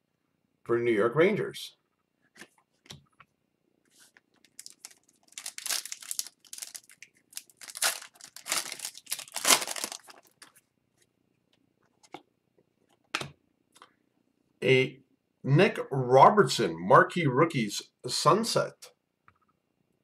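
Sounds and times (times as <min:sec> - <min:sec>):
foil wrapper crinkling: 0:04.4 - 0:10.6.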